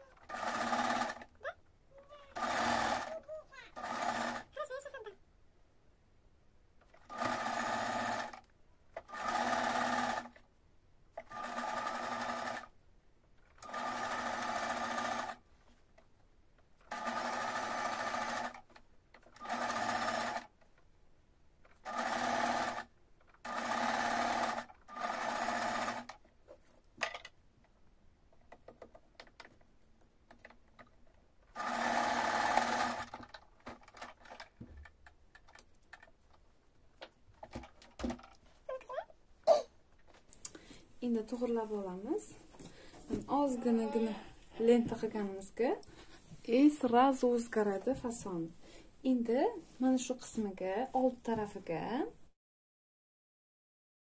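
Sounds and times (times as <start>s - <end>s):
electric sewing machine stitching: 0.0s - 1.4s, 2.3s - 4.6s, 6.9s - 10.4s, 11.2s - 12.7s, 13.5s - 15.4s, 16.8s - 20.5s, 21.8s - 26.2s, 31.5s - 34.5s.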